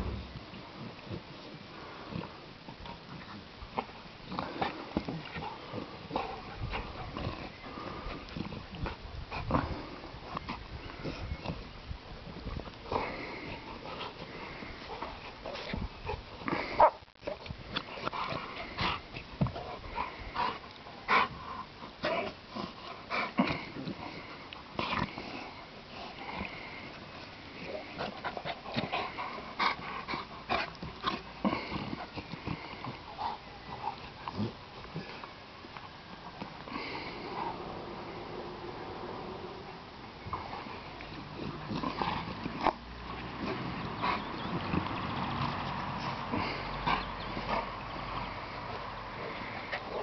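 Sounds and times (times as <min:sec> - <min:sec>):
dogs grunting while play-fighting: 0:00.0 - 0:50.0.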